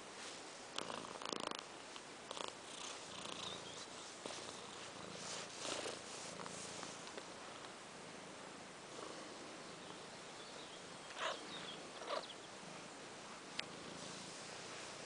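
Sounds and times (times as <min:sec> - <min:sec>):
cat purring: 0:00.7 - 0:01.7, 0:02.3 - 0:15.0
fur brushing and rustling: 0:03.8 - 0:07.2.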